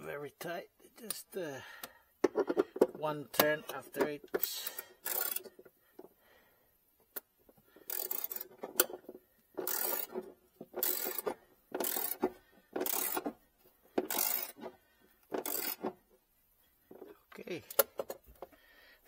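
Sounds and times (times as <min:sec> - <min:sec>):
ratchet wrench clicking: 0:02.2 - 0:05.7, 0:07.1 - 0:13.4, 0:14.0 - 0:16.0.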